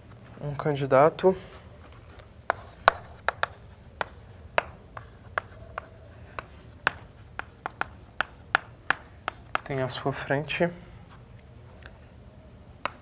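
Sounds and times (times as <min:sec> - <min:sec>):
chalk tapping and scratching on board: 0:02.5 - 0:10.0.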